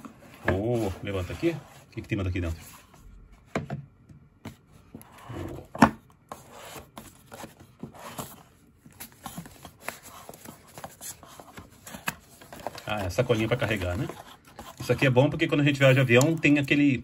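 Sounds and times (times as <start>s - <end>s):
cardboard rubbing and sliding: 0.0s - 2.9s, 6.3s - 16.5s.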